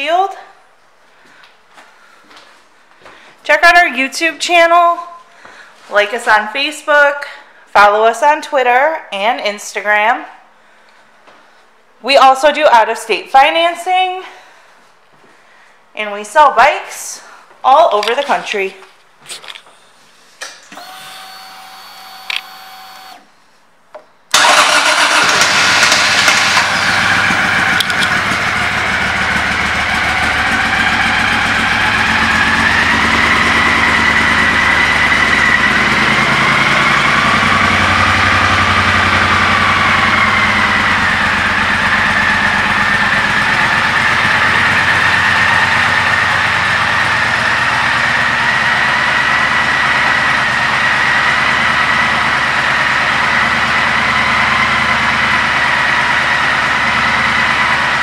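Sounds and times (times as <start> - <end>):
motorcycle engine starting and idling: 20.7 - 23.3, 24.3 - 58.0.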